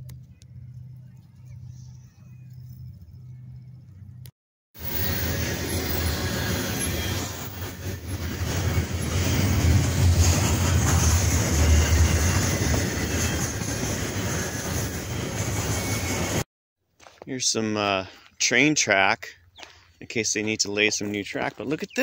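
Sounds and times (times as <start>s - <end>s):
freight train wheels rumbling: 4.8s - 16.4s.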